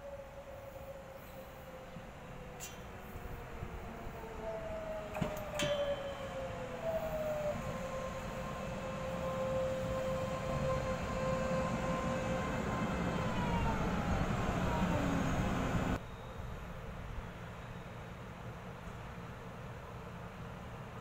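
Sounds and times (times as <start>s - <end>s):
electric train motors whining: 3.0s - 16.0s.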